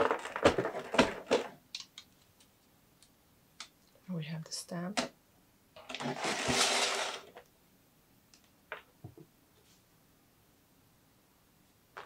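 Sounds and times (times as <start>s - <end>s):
packaging rustling and scraping: 0.0s - 1.5s, 5.8s - 7.4s.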